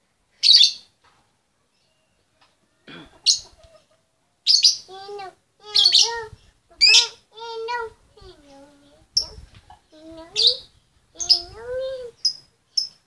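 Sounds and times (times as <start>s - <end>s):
low wavering bird sounds: 4.5s - 13.0s.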